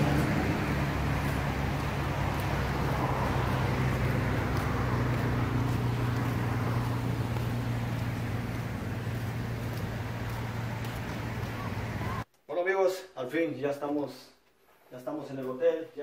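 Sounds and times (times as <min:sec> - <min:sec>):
outdoor rushing noise: 0:00.0 - 0:12.2.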